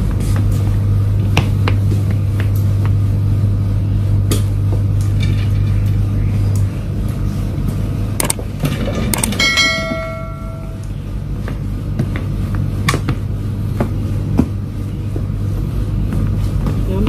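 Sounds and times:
steady low hum: 0:00.0 - 0:17.0
bell-like ding: 0:09.4 - 0:10.8.

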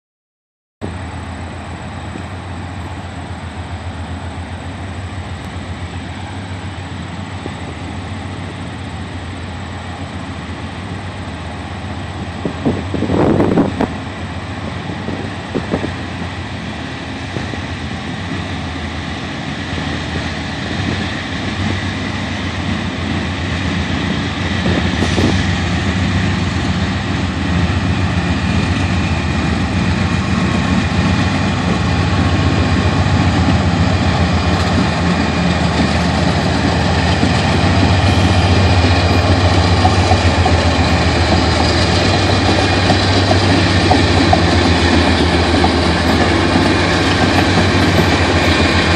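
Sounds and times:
diesel locomotive engine drone: 0:00.8 - 0:48.9.

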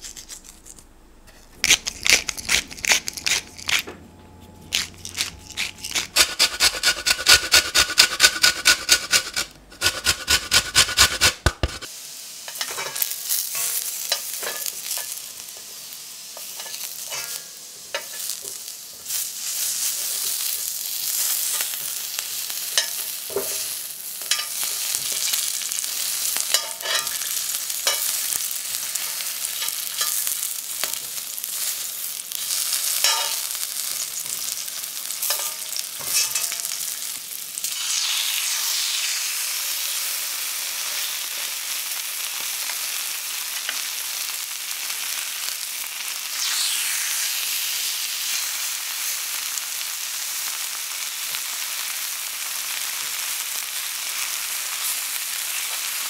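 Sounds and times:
rhythmic scraping strokes: 0:00.0 - 0:11.9
potatoes sizzling in oil: 0:04.7 - 0:56.0.

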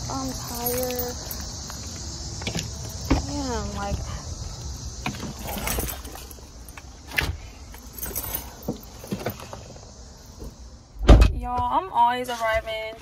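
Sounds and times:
light jingle: 0:00.1 - 0:01.4, 0:07.8 - 0:09.1.

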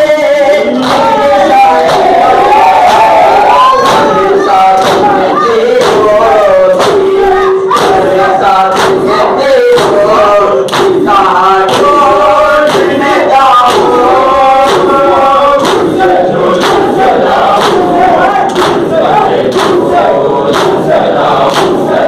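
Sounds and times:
crowd of men chanting in unison: 0:00.0 - 0:22.0
hands beating on chests: 0:07.7 - 0:11.1, 0:11.7 - 0:21.9.

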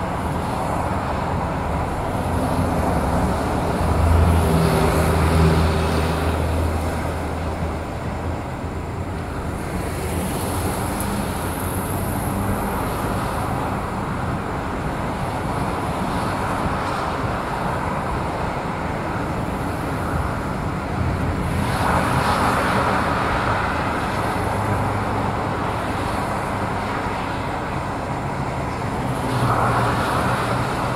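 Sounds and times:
highway traffic passing: 0:00.0 - 0:30.9
loud vehicle passing: 0:01.0 - 0:08.0.

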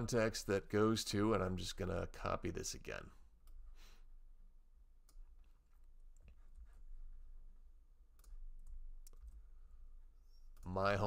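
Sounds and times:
keyboard and mouse clicks: 0:08.1 - 0:09.4.

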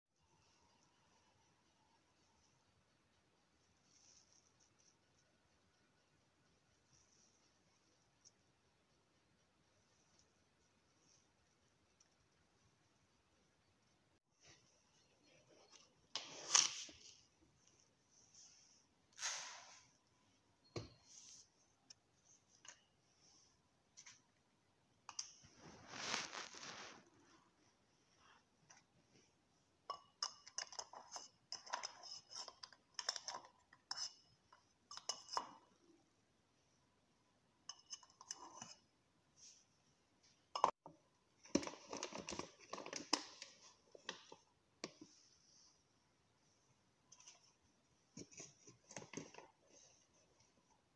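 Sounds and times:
soft rustling: 0:25.4 - 0:29.4
plastic crinkling: 0:25.7 - 0:27.1.

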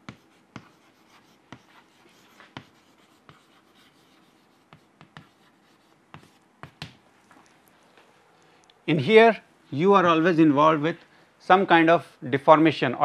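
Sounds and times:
chalk writing on chalkboard: 0:00.0 - 0:07.0.

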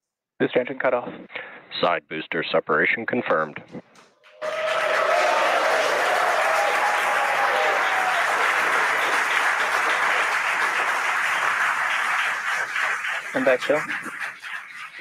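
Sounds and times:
crowd cheering and applauding: 0:04.3 - 0:14.5
whistles from crowd: 0:04.4 - 0:12.5.

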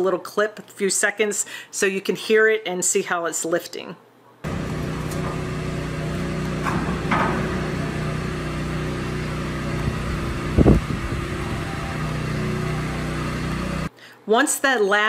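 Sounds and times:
hydraulic power unit humming: 0:04.5 - 0:13.9.

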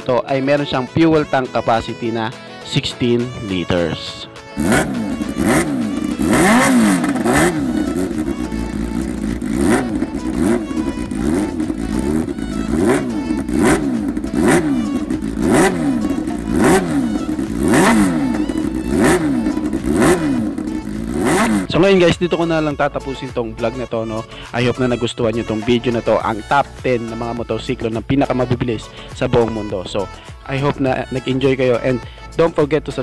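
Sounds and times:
motorcycle engine revving: 0:04.3 - 0:22.2.

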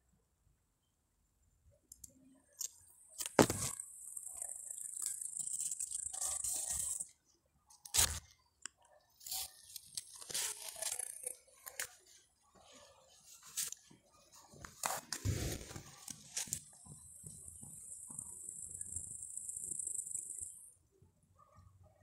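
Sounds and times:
leaves rustling against phone: 0:09.2 - 0:12.2, 0:13.2 - 0:13.9, 0:14.6 - 0:16.6.

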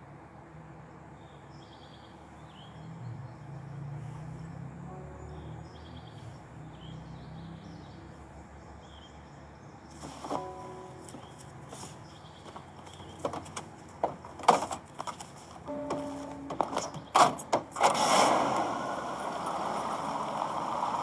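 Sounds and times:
small birds chirping: 0:00.9 - 0:17.6.

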